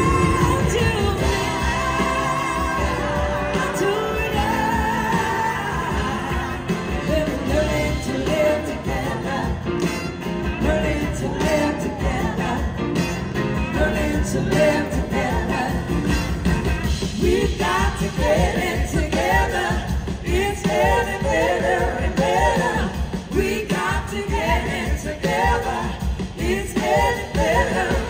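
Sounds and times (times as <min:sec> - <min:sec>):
woman singing into microphone: 0:00.0 - 0:09.6
live rock band playing: 0:00.0 - 0:28.0.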